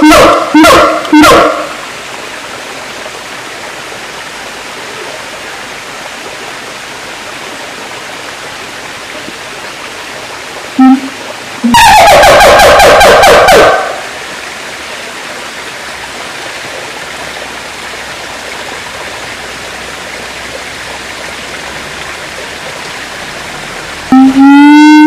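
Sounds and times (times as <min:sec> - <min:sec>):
ape calling: 0:10.8 - 0:14.0, 0:24.1 - 0:25.0.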